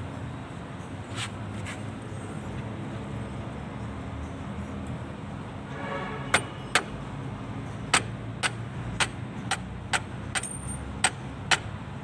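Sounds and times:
hammer tapping on metal: 7.9 - 11.7.

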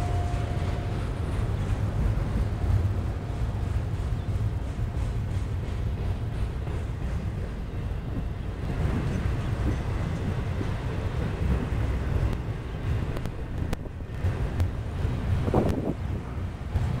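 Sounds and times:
freight train rolling on rails: 0.0 - 17.0
faint clicks: 12.2 - 12.5, 13.1 - 14.8.

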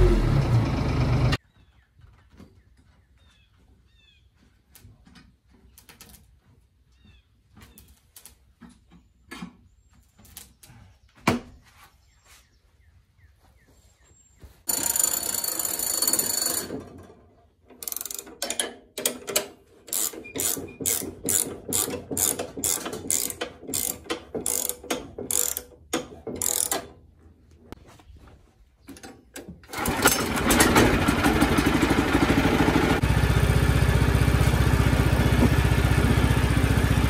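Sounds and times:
hand crank ratcheting clatter: 14.7 - 16.9, 17.7 - 27.0.

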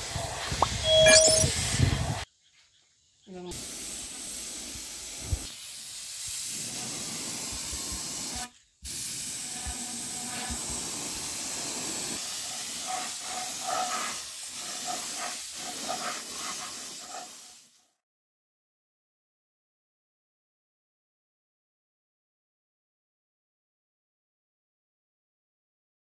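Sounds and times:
steady air hiss: 3.5 - 17.8.

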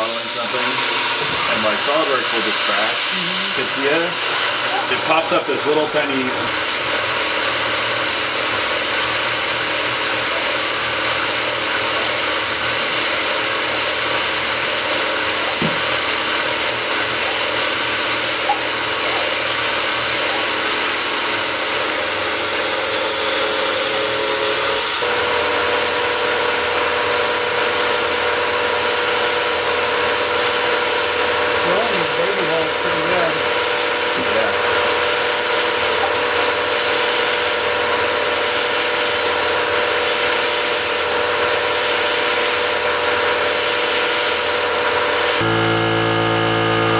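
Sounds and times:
air hissing from nozzle: 0.0 - 7.6
milling machine spindle running: 0.0 - 46.9.

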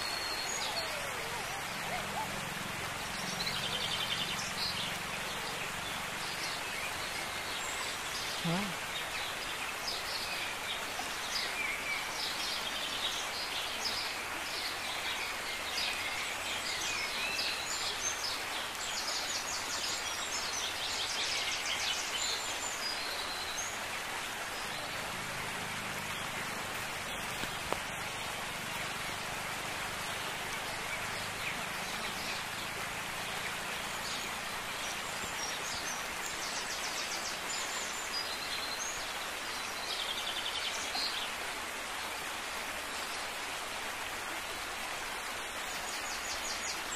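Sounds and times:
birds chirping: 0.0 - 10.1
outdoor hiss: 0.0 - 46.9.

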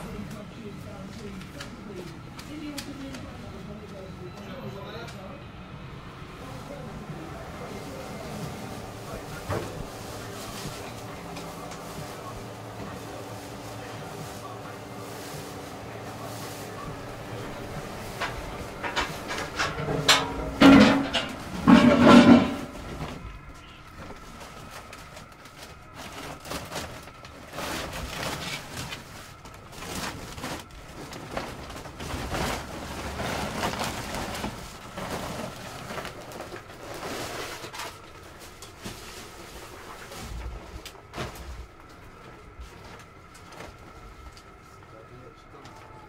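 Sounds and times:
knocks and clatter on shelves: 7.9 - 13.0, 16.7 - 44.3
loud clunks: 18.1 - 23.0.

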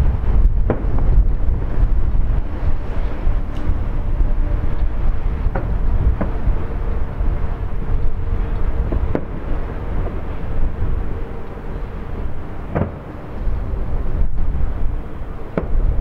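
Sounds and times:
low rumble: 0.0 - 16.0
distant fireworks bangs: 8.7 - 10.5, 12.6 - 13.4, 15.5 - 16.0.

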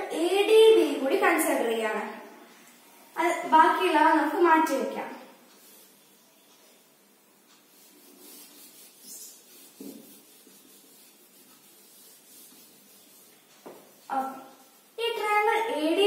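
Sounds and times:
eraser rubbing on whiteboard: 5.5 - 6.0, 7.5 - 15.4.

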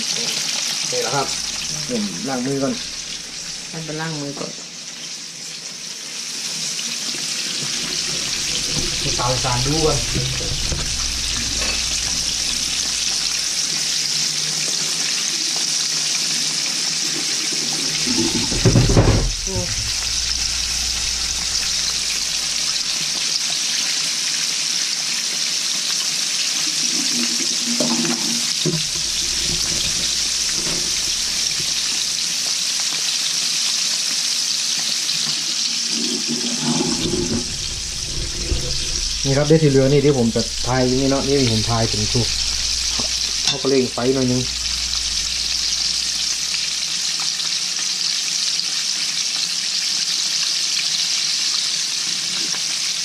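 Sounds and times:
oil sizzling in deep frying: 0.0 - 53.0
bump: 7.6 - 13.6, 17.9 - 22.9, 36.6 - 46.8.

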